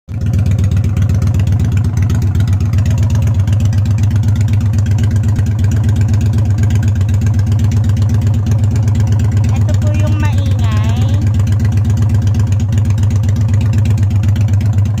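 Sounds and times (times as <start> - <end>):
motorcycle engine idling: 0.1 - 15.0.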